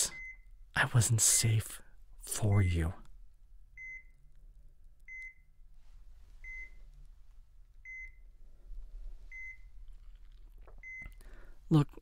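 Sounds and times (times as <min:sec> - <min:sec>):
patient monitor beeping: 0:00.0 - 0:00.6, 0:03.8 - 0:04.3, 0:05.1 - 0:05.6, 0:06.4 - 0:06.8, 0:07.8 - 0:08.4, 0:09.3 - 0:09.8, 0:10.8 - 0:11.2
faint low hum: 0:00.0 - 0:12.0.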